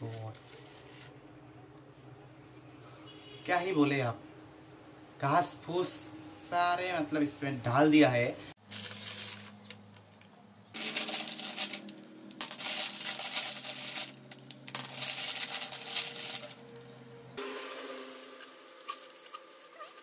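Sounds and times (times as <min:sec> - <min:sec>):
foil snack packet crinkling: 0:08.6 - 0:09.9, 0:10.8 - 0:16.8, 0:17.4 - 0:20.0.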